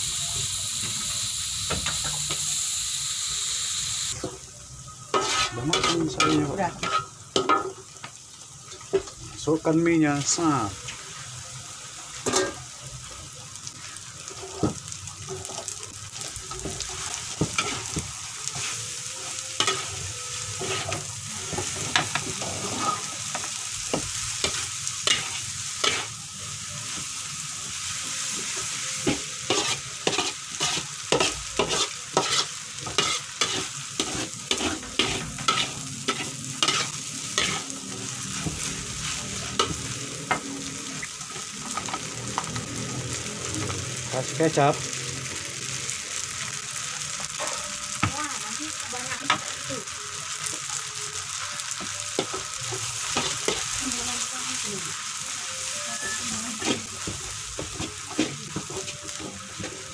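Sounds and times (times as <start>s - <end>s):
noodles sizzling in a wok: 0.0s - 59.9s
metal spatula scraping a pan: 5.0s - 7.8s, 12.1s - 12.6s, 16.5s - 26.2s, 29.0s - 40.7s, 55.9s - 57.1s.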